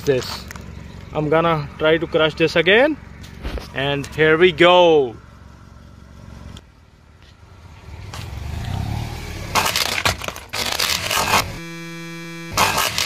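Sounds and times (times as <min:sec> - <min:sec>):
car low rumble: 0:00.0 - 0:13.0
steady hum: 0:10.6 - 0:13.0.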